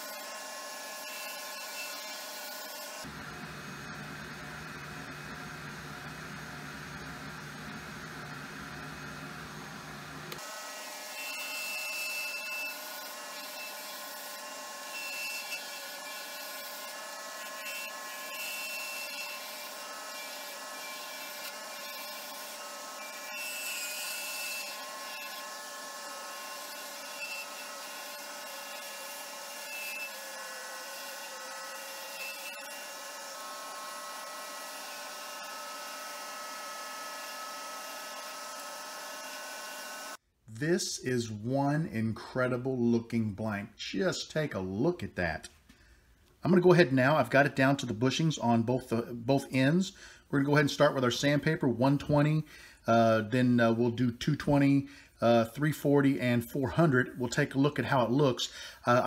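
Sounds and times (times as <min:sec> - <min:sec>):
turning tool cutting wood: 0:00.0 - 0:40.2
wood lathe whining: 0:00.0 - 0:40.2.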